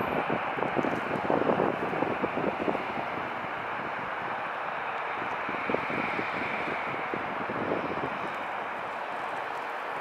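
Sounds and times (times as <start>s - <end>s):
jet engines running: 0.0s - 10.0s
wind buffeting microphone: 0.0s - 10.0s.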